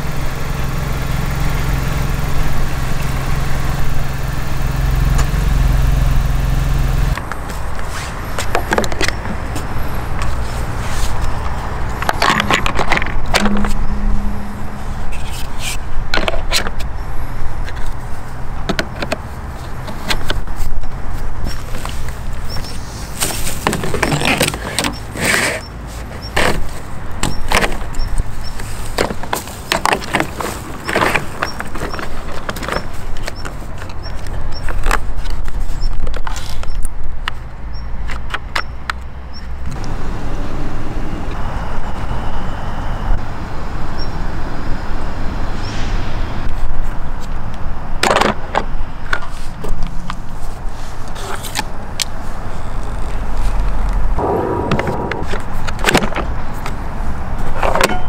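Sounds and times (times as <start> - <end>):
steady low rumble: 11.5 - 16.1, 53.7 - 56.9.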